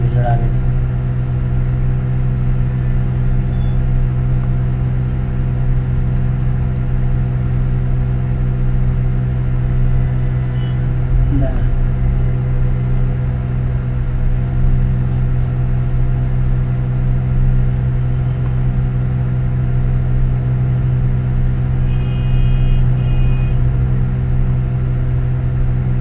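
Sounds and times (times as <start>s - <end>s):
low mechanical hum: 0.0s - 26.0s
short high-pitched beeps: 3.4s - 3.8s.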